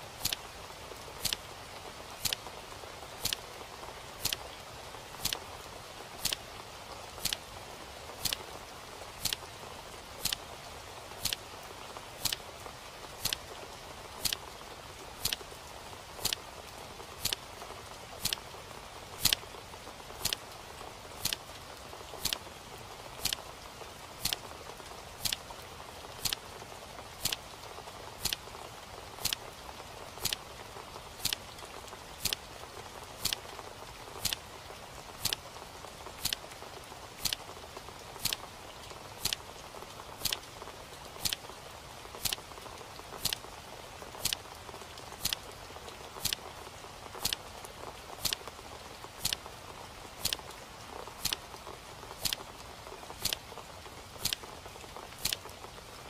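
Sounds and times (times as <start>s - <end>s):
soft steady hiss: 0.0s - 56.0s
clock ticking: 3.2s - 3.4s, 6.2s - 6.4s, 8.2s - 8.4s, 10.2s - 10.4s, 13.2s - 13.4s, 15.2s - 15.4s, 26.2s - 26.4s, 28.2s - 28.4s, 34.2s - 34.4s, 35.2s - 35.4s, 38.2s - 38.4s, 40.2s - 40.5s, 41.2s - 41.4s, 42.2s - 42.4s, 43.2s - 43.4s, 44.2s - 44.4s, 45.2s - 45.4s, 46.2s - 46.4s, 48.2s - 48.4s, 49.2s - 49.4s, 50.2s - 50.4s, 51.2s - 51.4s, 52.2s - 52.4s, 53.2s - 53.4s, 54.2s - 54.4s, 55.2s - 55.4s.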